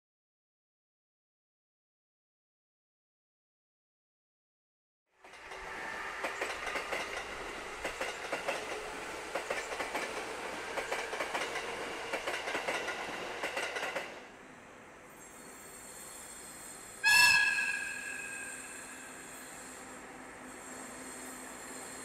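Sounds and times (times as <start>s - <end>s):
train wheels clicking over rail joints: 5.2s - 14.2s.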